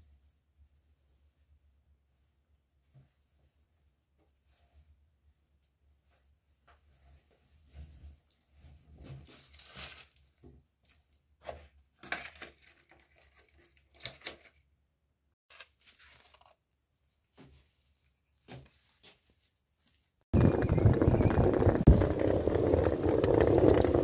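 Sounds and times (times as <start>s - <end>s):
clothing and plastic bag rustling: 2.8s - 14.6s, 15.5s - 16.6s
loud outdoor rumble: 20.4s - 24.0s.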